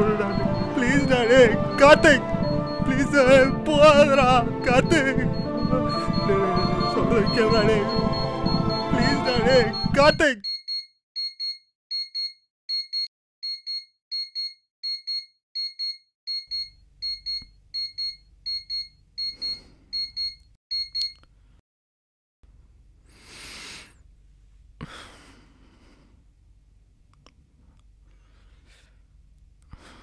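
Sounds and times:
electronic beeper beeping: 0.0 - 10.8
heavy breaths: 24.8 - 26.3, 28.1 - 29.1, 29.7 - 30.0.

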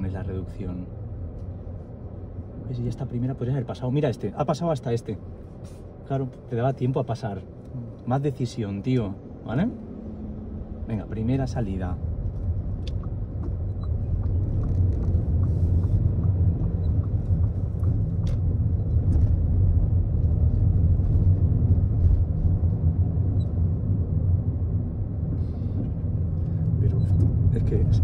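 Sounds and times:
car engine and tyres rumbling: 0.0 - 28.0
turn signal ticking: 12.1 - 19.5.

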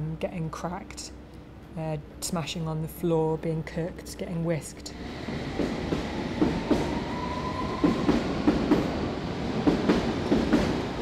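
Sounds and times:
train rumbling: 4.5 - 11.0
high squeal: 6.8 - 8.0.

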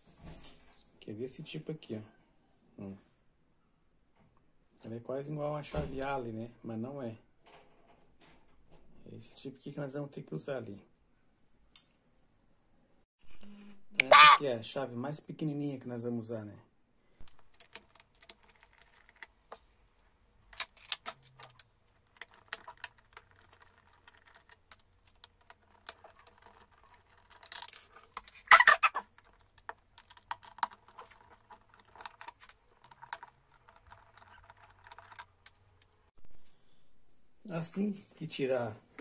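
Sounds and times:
plastic case being handled: 17.2 - 36.1
screwdriver clicking and scraping: 20.6 - 36.0.

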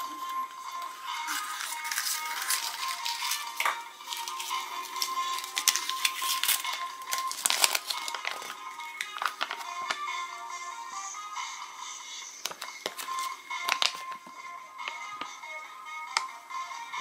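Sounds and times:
quiet background music: 0.0 - 17.0
paper leaflet crinkling: 1.2 - 10.0
plastic capsule clicks: 7.4 - 10.0, 12.4 - 14.1.

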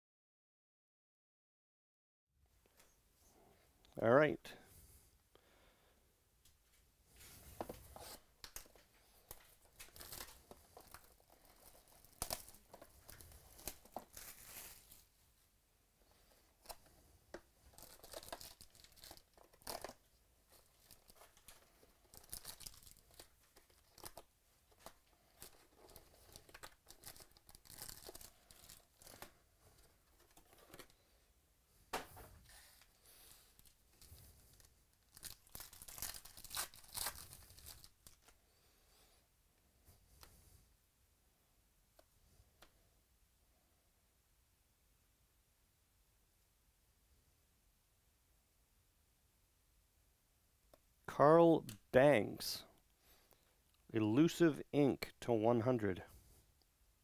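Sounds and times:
plastic shrink wrap tearing: 9.3 - 15.1, 17.7 - 20.0, 20.6 - 29.4, 33.6 - 38.4
foil pack tearing: 35.1 - 38.2.

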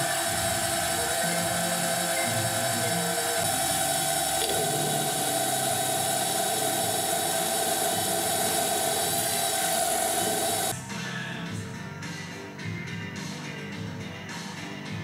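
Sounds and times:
milling machine whining: 0.0 - 10.8.

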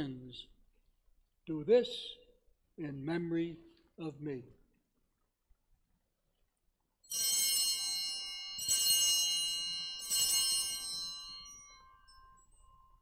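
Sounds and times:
altar bells ringing: 7.1 - 13.0.

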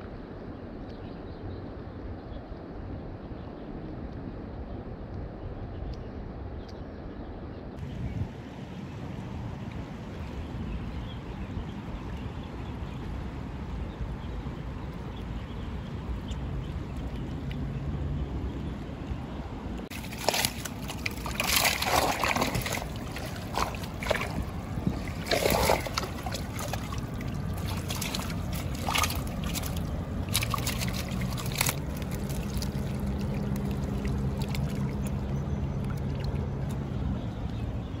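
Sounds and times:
low steady hum: 0.0 - 38.0
fish splashing in water: 19.9 - 37.6.

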